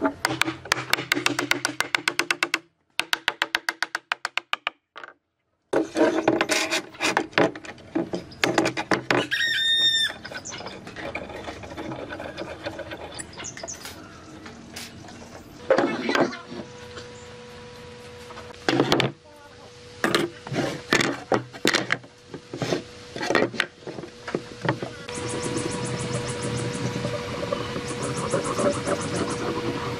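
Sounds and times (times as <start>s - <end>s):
wooden mallet tapping on board: 0.3s - 4.8s.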